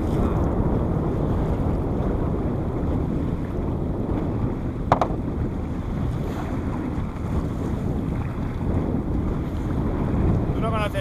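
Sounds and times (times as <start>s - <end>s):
rushing water: 0.0s - 11.0s
wind rumbling on microphone: 0.0s - 11.0s
short sharp knock: 4.9s - 5.2s.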